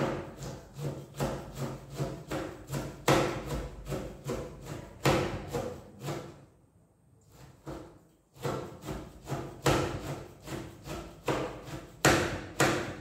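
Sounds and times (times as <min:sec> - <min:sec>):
knife chopping on cutting board: 0:00.0 - 0:06.4, 0:07.3 - 0:13.0.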